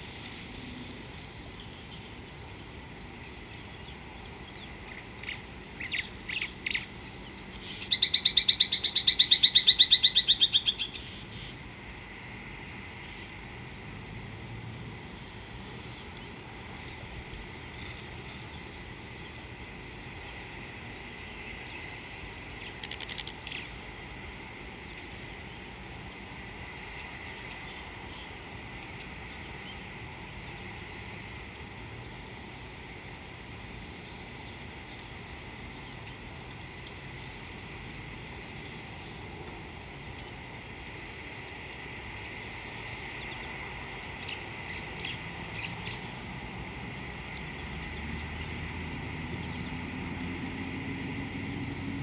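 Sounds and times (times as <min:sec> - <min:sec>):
insects chirping: 0:00.0 - 0:52.0
bird calls and rapid trill: 0:03.8 - 0:11.6.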